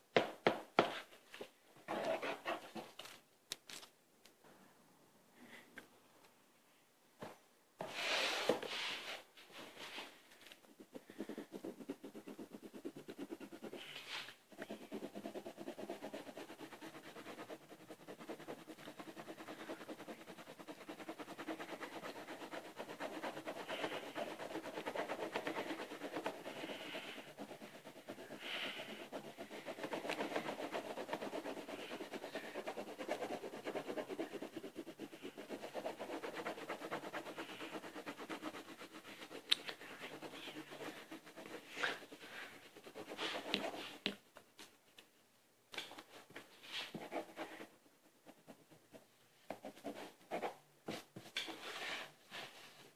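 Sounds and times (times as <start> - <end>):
wax crayon scribbling on paper: 10.7 - 44.0.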